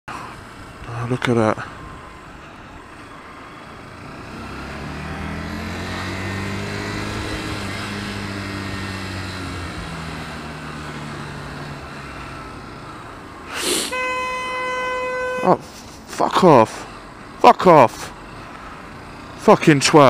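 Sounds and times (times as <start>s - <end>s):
motorcycle engine accelerating: 3.0s - 13.1s.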